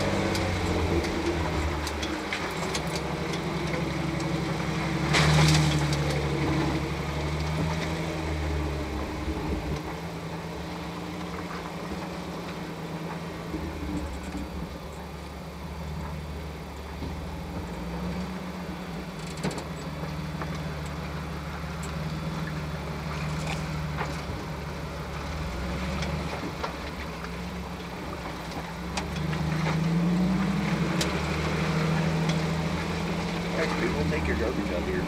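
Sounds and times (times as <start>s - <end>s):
off-road vehicle engine: 0.0s - 35.0s.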